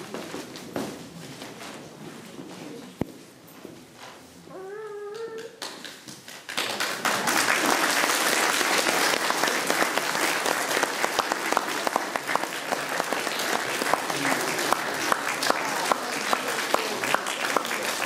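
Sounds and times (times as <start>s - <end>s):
audience applause: 5.6s - 18.0s.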